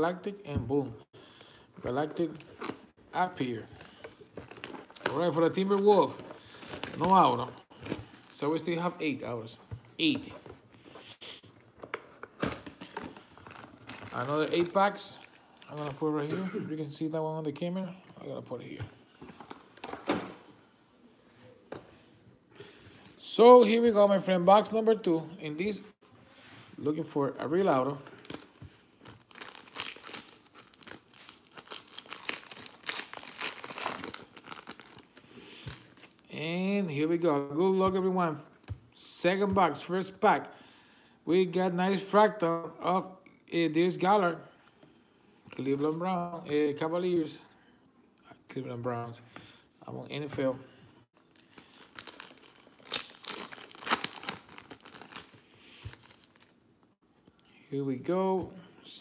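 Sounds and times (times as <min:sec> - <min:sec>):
plastic wrapper crinkling and tearing: 0:28.1 - 0:36.3, 0:51.2 - 0:56.8.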